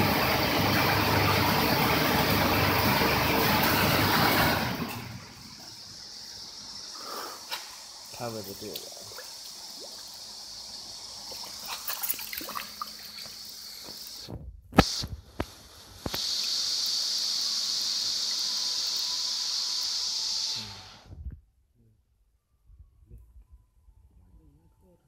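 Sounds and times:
water running: 7.7 - 14.2.

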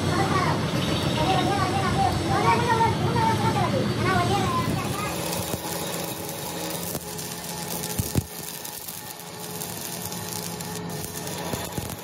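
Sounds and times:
welding arc crackling: 4.0 - 12.0
sharp welding pops: 4.7 - 12.0.

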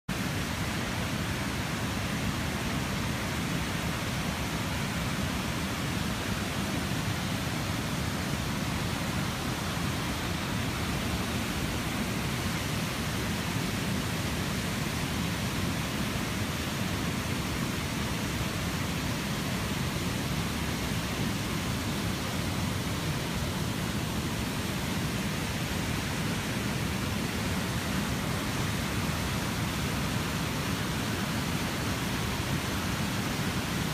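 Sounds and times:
flood water rushing: 0.1 - 33.9
heavy rain: 0.1 - 33.9.

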